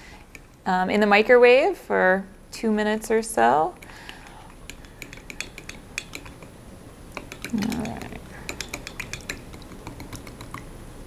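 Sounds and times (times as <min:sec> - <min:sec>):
spoon clinking in glass cup: 0:07.2 - 0:10.6.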